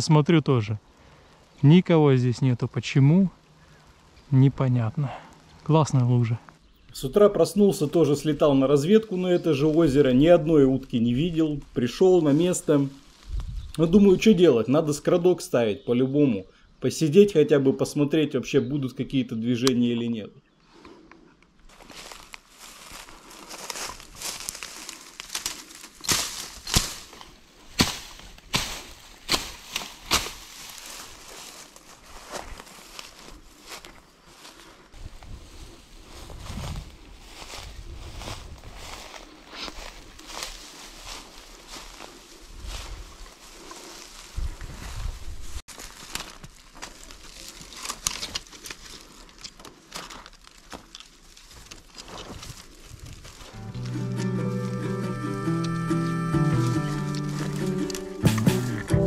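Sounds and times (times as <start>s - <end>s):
twigs cracking: 20.8s - 35.3s, 45.6s - 58.9s
rustling in brush: 21.7s - 58.9s.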